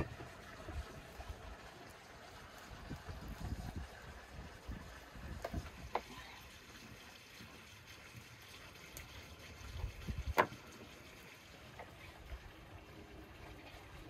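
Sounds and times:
wind on microphone: 2.6 - 5.9, 9.7 - 10.4.

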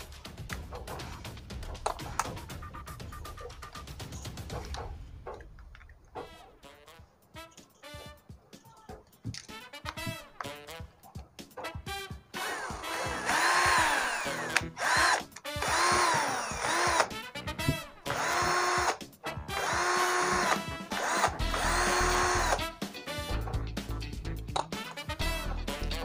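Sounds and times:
cordless drill motor whine: 12.4 - 17.1, 18.1 - 19.0, 19.6 - 22.7.

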